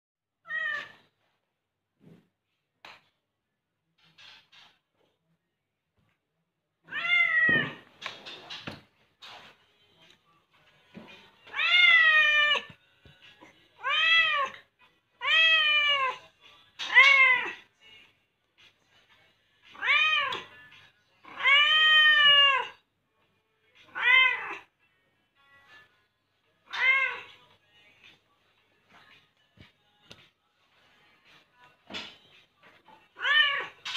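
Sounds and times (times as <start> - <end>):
cat meowing: 0.4 - 1.0, 6.9 - 7.8, 11.5 - 12.8, 13.8 - 14.6, 15.2 - 16.2, 16.9 - 17.6, 19.8 - 20.5, 21.3 - 22.8, 23.8 - 24.7, 26.7 - 27.4, 33.2 - 33.8.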